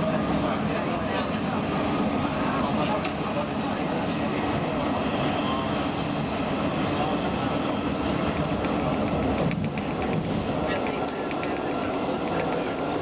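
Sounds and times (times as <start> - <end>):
train wheels rumbling on rails: 0.0 - 13.0
high wheel squeal: 3.2 - 6.6.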